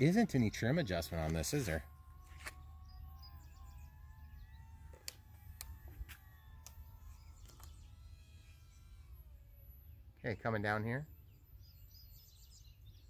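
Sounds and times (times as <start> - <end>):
electric motors whining: 0.0 - 13.0.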